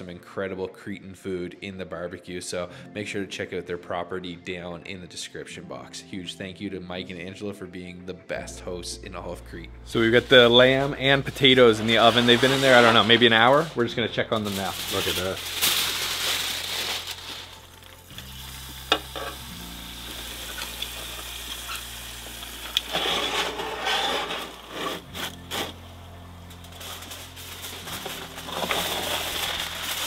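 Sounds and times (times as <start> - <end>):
soft background music: 0.0 - 30.0
meat sizzling in roasting pan: 14.8 - 25.0.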